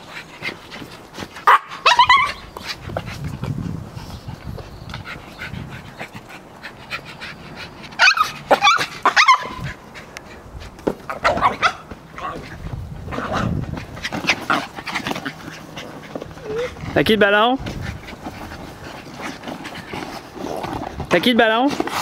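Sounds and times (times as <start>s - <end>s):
small dog yapping: 1.4s - 2.4s, 8.0s - 9.8s, 11.1s - 12.4s.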